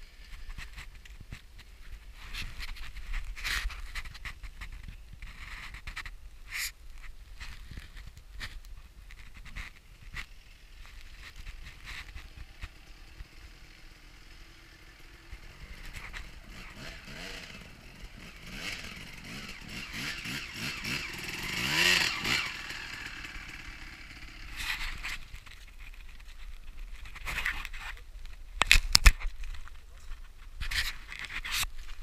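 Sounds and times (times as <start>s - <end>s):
dirt bike engine revving: 10.3s - 25.3s.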